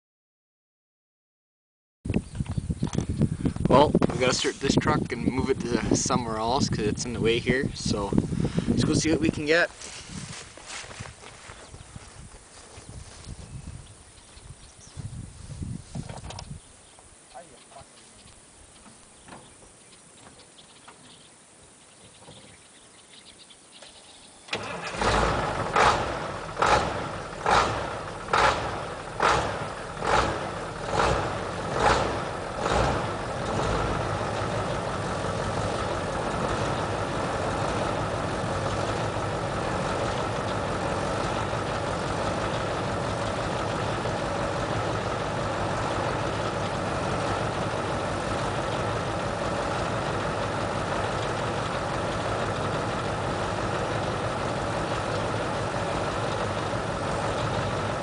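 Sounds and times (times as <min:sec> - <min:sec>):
diesel truck engine revving: 0:24.5 - 0:58.0.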